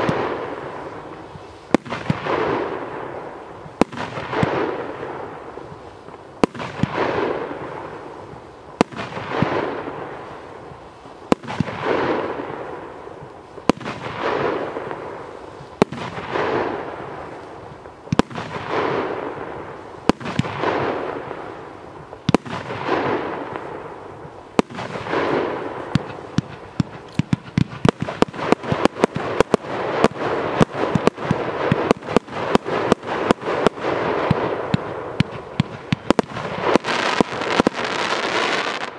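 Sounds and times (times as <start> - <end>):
firework crackling: 0.0 - 38.9
firework shots: 0.0 - 38.9.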